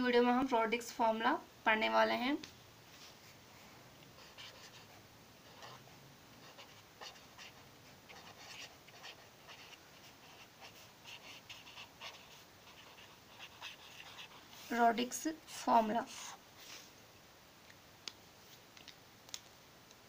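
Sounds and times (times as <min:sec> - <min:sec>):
marker pen scratching on paper: 0:04.2 - 0:16.8.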